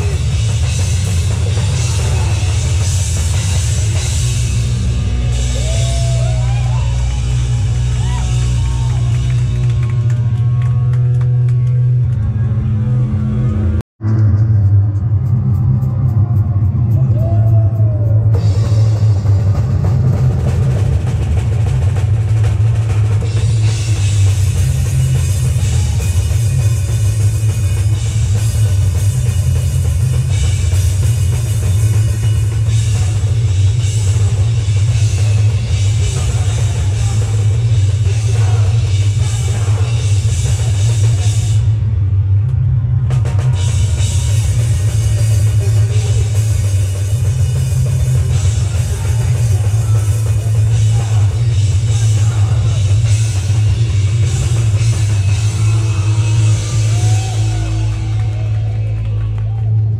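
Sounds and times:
heavy rock band playing: 0.0s - 59.9s.

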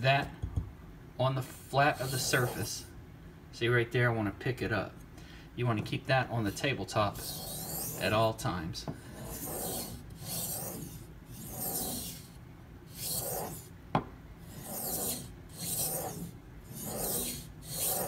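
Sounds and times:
knife scraping on whetstone: 1.5s - 2.8s, 6.5s - 8.2s, 9.1s - 13.7s, 14.4s - 18.0s.

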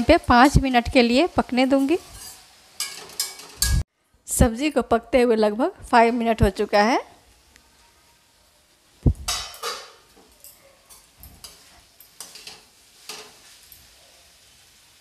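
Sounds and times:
spatula scraping a pan: 0.3s - 3.9s, 10.9s - 14.4s
low knock: 9.1s - 9.3s.

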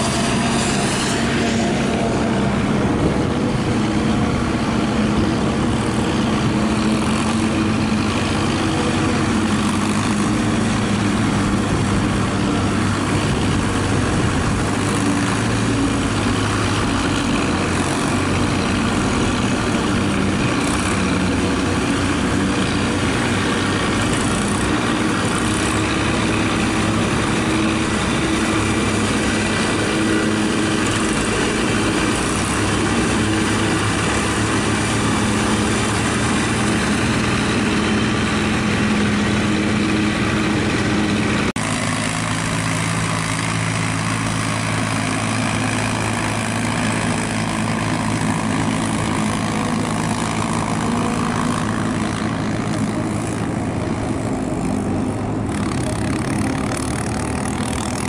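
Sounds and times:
forage harvester whirring: 0.0s - 58.0s
tractor engine hum: 0.0s - 58.0s.

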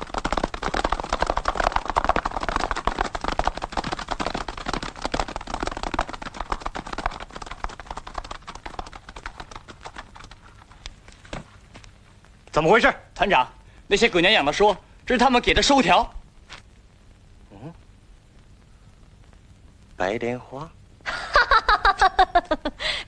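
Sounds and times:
horses galloping hoofbeats: 0.0s - 11.9s.

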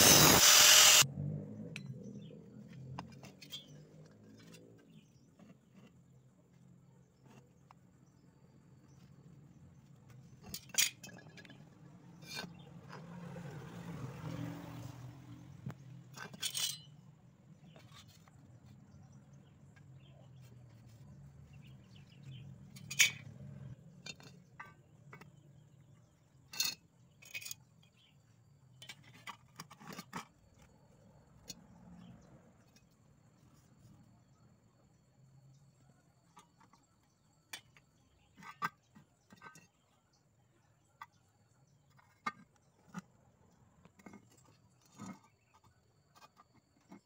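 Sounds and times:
metal tools clinking on steel: 3.0s - 4.8s, 10.3s - 12.6s, 16.1s - 17.1s, 22.6s - 24.8s.

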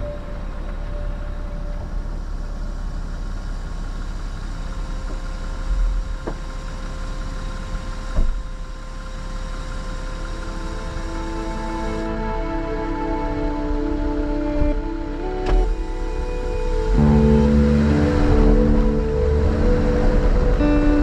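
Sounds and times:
engine and tyre rumble: 0.0s - 21.0s.

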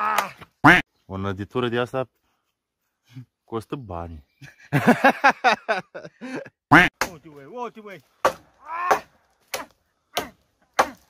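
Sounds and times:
man laughing loudly: 4.4s - 6.6s.

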